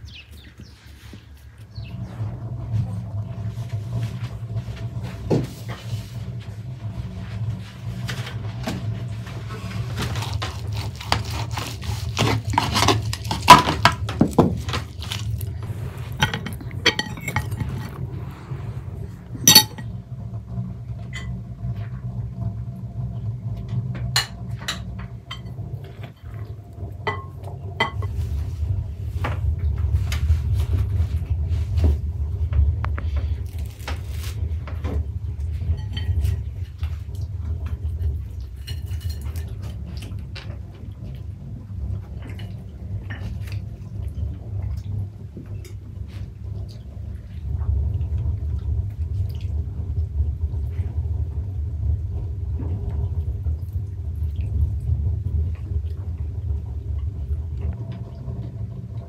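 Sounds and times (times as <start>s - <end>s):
steady low hum: 0.0s - 59.0s
dishes clinking and knocking: 16.0s - 18.1s, 19.4s - 20.0s, 27.0s - 28.2s, 35.6s - 36.7s.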